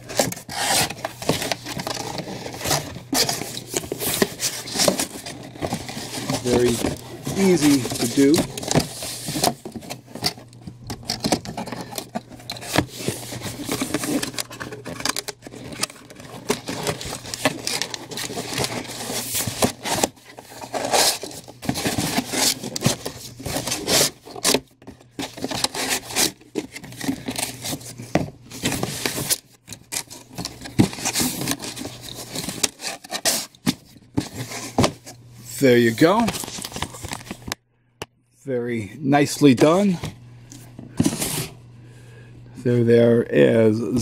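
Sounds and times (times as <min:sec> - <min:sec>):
cardboard box being folded: 0:00.0 - 0:10.6, 0:11.3 - 0:24.6, 0:25.2 - 0:34.9.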